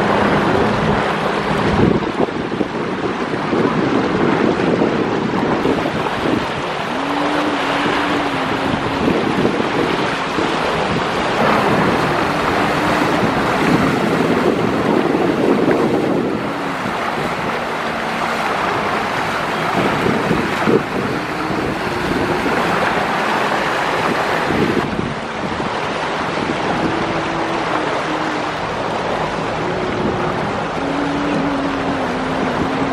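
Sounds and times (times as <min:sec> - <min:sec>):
motorboat engines droning: 0:00.0 - 0:32.9
water rushing along hulls: 0:00.0 - 0:32.9
wind buffeting microphone: 0:00.0 - 0:32.9.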